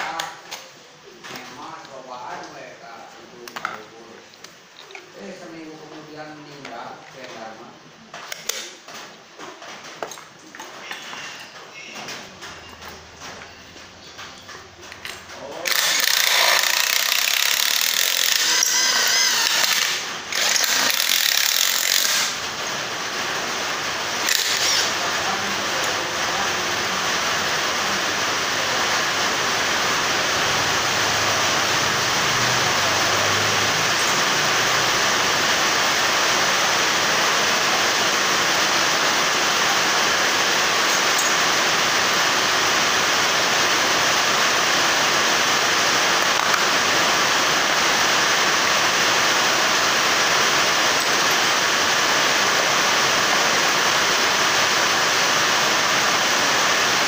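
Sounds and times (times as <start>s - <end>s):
impact wrench motor whining: 15.6s - 22.4s, 24.1s - 25.0s.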